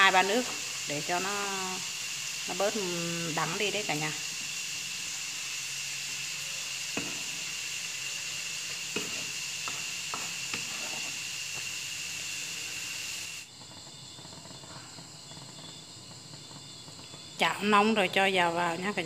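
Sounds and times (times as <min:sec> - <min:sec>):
steady hiss with high tone: 0:00.0 - 0:19.0.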